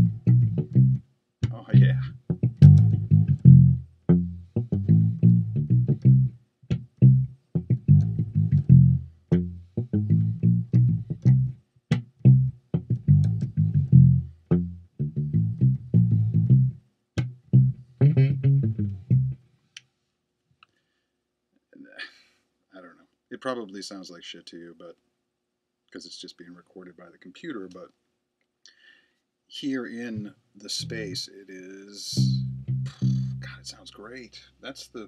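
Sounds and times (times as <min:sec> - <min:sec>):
electric bass playing short notes: 0:00.0 - 0:19.4, 0:30.1 - 0:31.3, 0:32.1 - 0:33.8.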